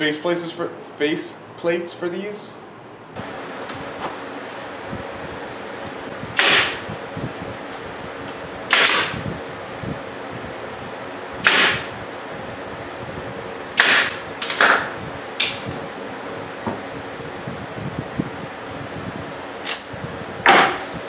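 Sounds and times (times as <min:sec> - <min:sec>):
staple gun firing: 0:06.4 - 0:06.8, 0:08.7 - 0:09.2, 0:11.4 - 0:11.9.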